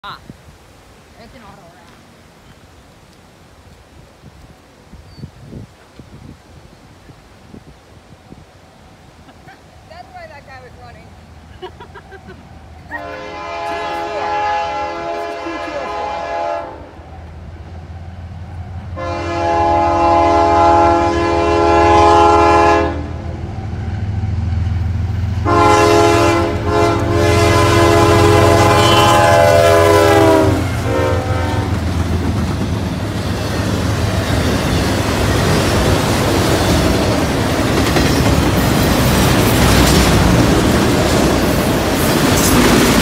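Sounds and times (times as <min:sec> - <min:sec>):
rail cars clattering past: 0:09.8 - 0:43.0
diesel locomotive rumble: 0:09.9 - 0:43.0
train air horn blasts: 0:12.9 - 0:17.0, 0:18.9 - 0:23.3, 0:25.4 - 0:31.8.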